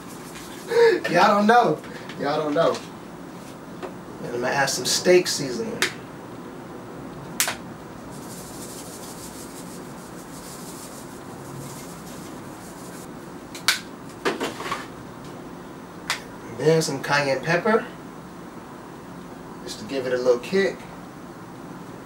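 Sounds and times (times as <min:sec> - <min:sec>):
soft hiss of sprinkling: 0:00.0 - 0:00.8, 0:08.0 - 0:13.1
room hum: 0:00.0 - 0:22.0.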